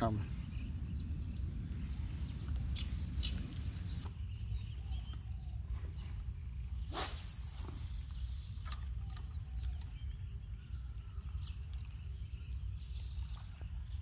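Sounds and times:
faint bird chirps: 0.0s - 14.0s
wind rumble on microphone: 0.0s - 14.0s
loud swish or rustle: 6.9s - 8.0s.

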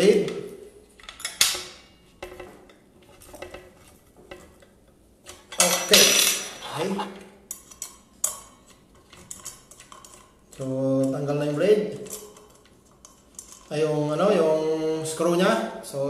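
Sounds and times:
metal clinks and scrapes: 1.0s - 10.8s, 11.9s - 13.8s.

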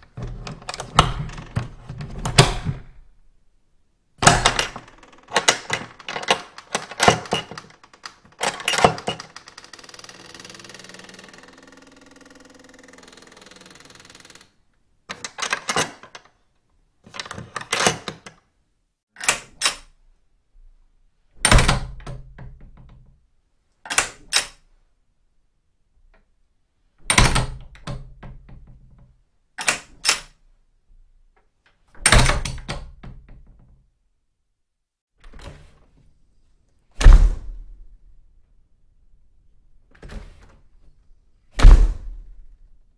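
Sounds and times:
metal latch clicking: 4.2s - 9.8s
door shutting with a thud: 37.0s - 37.8s, 41.5s - 42.4s.

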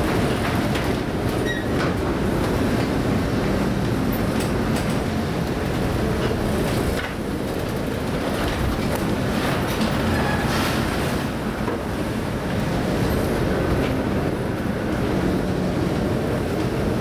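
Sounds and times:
hull working through heavy seas: 0.0s - 17.0s
ship engines rumbling: 0.0s - 17.0s.

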